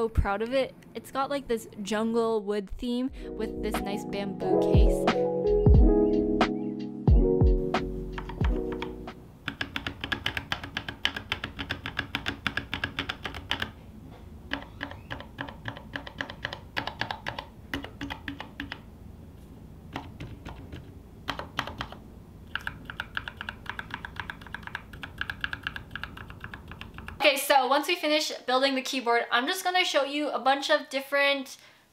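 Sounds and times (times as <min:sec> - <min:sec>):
mechanical keyboard typing: 0:08.2 - 0:13.8, 0:14.5 - 0:18.9, 0:19.9 - 0:27.2.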